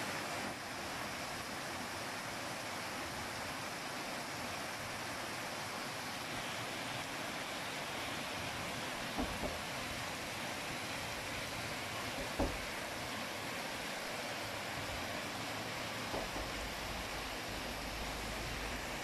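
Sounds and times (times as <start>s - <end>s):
heavy rain and hail: 8.5s - 13.2s.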